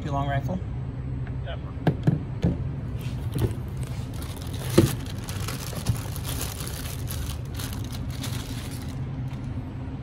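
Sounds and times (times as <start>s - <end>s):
steady low hum: 0.0s - 10.0s
plastic bag crinkling: 3.2s - 9.5s.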